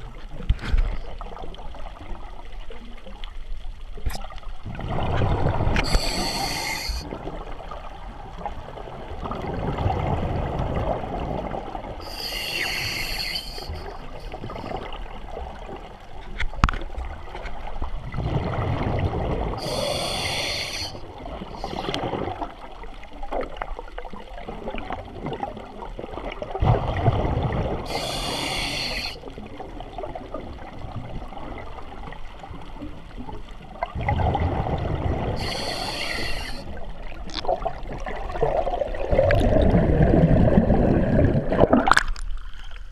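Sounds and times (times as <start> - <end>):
exhaled bubbles rumbling: 4.1 - 16.1, 17.0 - 42.9
regulator air hiss on inhale: 5.8 - 7.1, 12.0 - 14.6, 19.6 - 21.0, 21.6 - 22.0, 27.9 - 29.2, 35.4 - 36.8.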